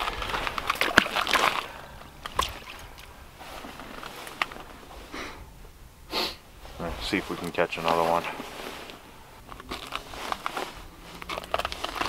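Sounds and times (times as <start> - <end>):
water sloshing and splashing: 0.0 - 5.1.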